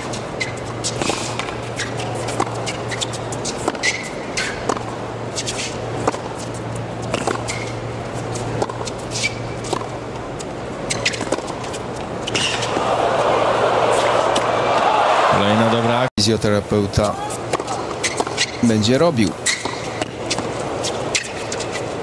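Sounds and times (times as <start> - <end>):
racket hitting tennis ball: 0.0 - 7.7, 8.5 - 10.0, 10.9 - 13.2
sneakers squeaking on court: 0.0 - 10.1, 10.8 - 12.8, 17.3 - 18.7, 19.4 - 22.0
crowd noise: 12.2 - 19.5.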